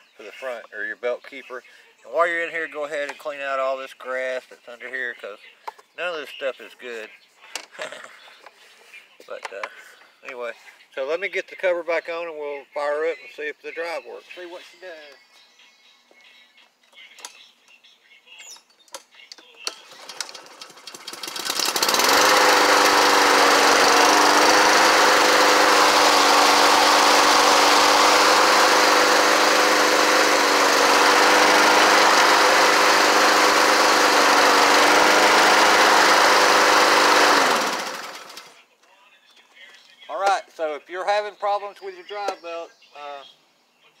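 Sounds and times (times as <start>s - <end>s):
lawn mower engine running: 19.6s - 38.6s.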